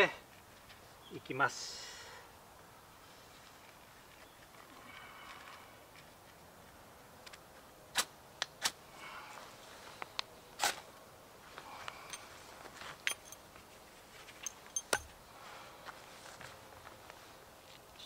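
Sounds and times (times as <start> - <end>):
soft rustling: 11.4 - 18.0.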